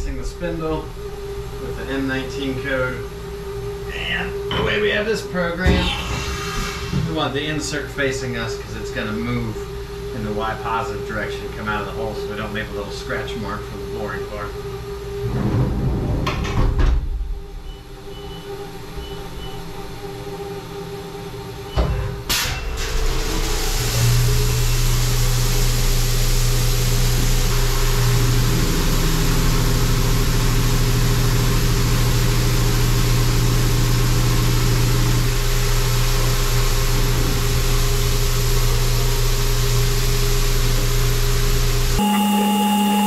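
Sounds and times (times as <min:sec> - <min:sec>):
steady spindle hum: 0:00.0 - 0:16.0, 0:41.8 - 0:43.0
faint beeps: 0:42.0 - 0:43.0.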